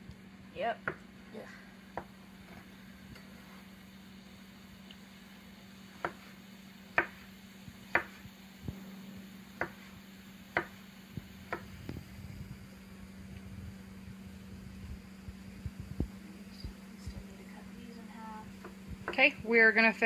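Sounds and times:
low steady hum: 0.0 - 20.0
knife chopping on plastic board: 6.0 - 6.3, 6.9 - 7.3, 7.9 - 8.2, 9.6 - 9.9, 10.5 - 10.8, 11.5 - 11.7.

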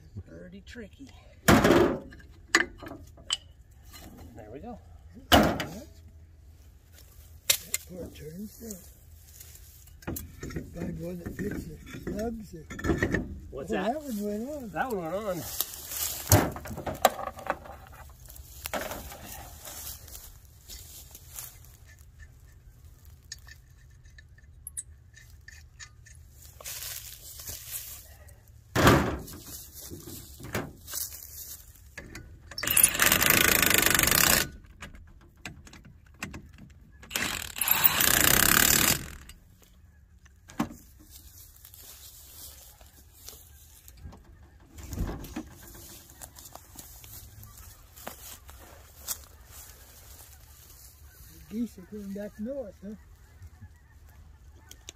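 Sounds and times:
impact wrench bursts: 32.6 - 34.6, 37.1 - 39.3.

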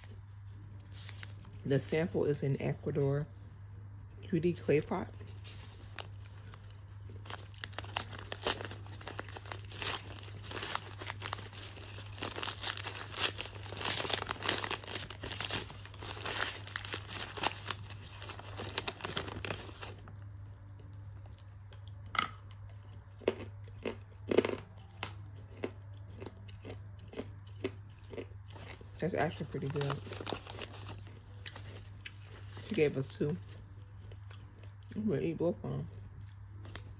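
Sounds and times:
paper bag crinkling and tearing: 0.8 - 1.7, 4.6 - 20.1, 28.6 - 33.0
crisp paper crunches and snaps: 0.9 - 1.6, 5.3 - 20.1, 28.6 - 32.8.

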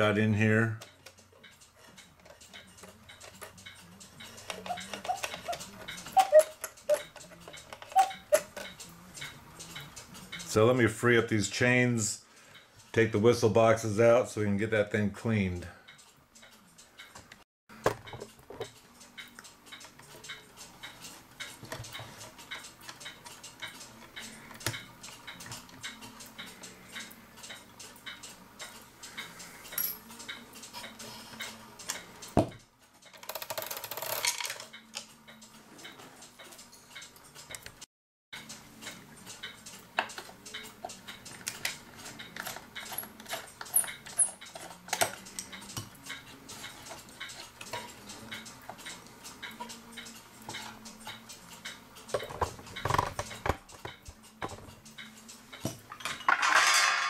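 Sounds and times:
clock ticking: 0.0 - 17.4, 18.2 - 33.7, 34.6 - 55.7
metal chains clinking: 29.7 - 30.1.

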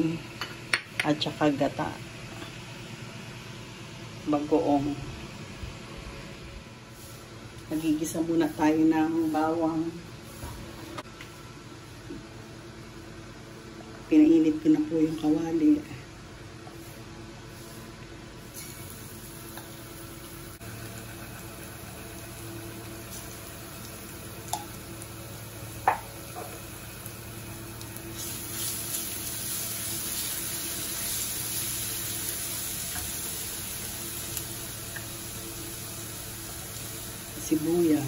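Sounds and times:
garlic sizzling in oil: 18.4 - 38.0.

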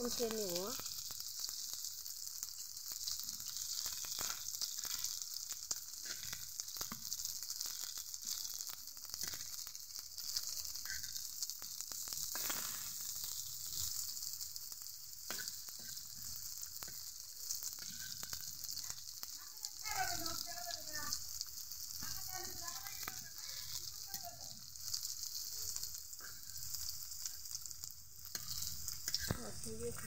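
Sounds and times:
fritters sizzling in oil: 0.0 - 30.0
metal spatula scraping a pan: 10.8 - 11.2, 15.2 - 17.0, 17.7 - 19.1, 22.9 - 24.0, 28.3 - 29.5.

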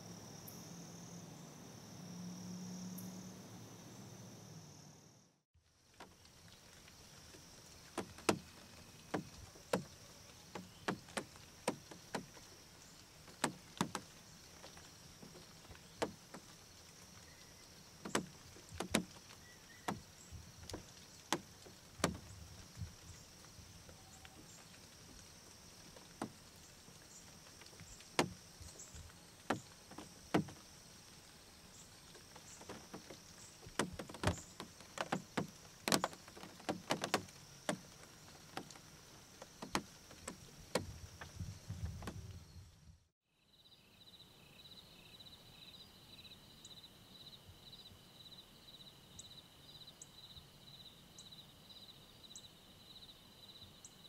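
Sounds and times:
high insect drone: 0.0 - 5.4
sharp clicks and knocks: 7.8 - 12.5, 13.3 - 16.6, 18.0 - 22.3, 25.9 - 26.4, 27.6 - 28.7, 29.4 - 30.6, 32.2 - 38.8, 39.4 - 41.4.

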